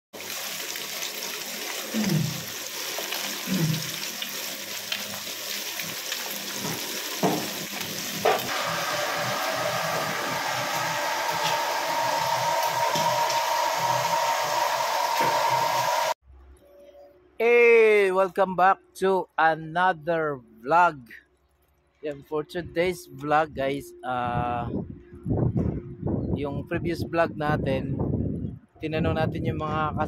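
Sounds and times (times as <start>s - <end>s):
fish frying in hot oil: 0.2s - 14.6s
whirring hum: 8.5s - 16.2s.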